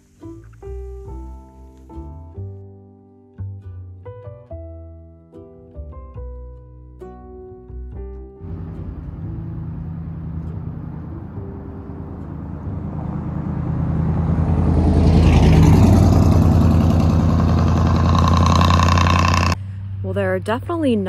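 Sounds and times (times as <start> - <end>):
vehicle engine and tyre noise: 8.4 - 21.0.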